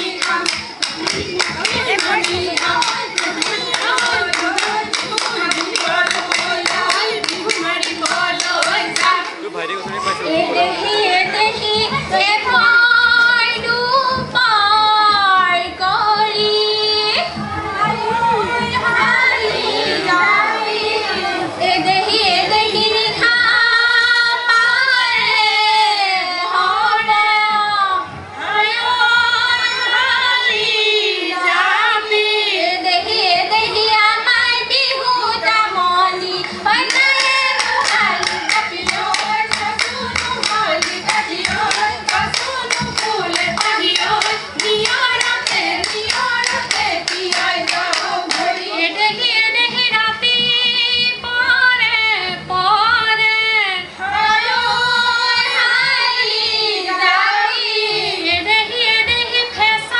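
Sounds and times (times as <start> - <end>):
hand-clapping: 0.0 - 9.4, 36.4 - 48.7
women singing folk song: 0.0 - 9.4, 10.0 - 59.9
live music: 0.0 - 59.9.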